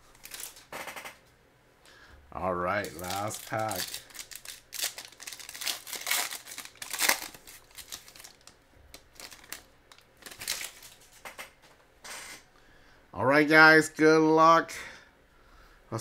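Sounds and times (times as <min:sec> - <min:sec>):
foil wrapper tearing and crinkling: 0:00.0 - 0:00.7, 0:02.7 - 0:11.1.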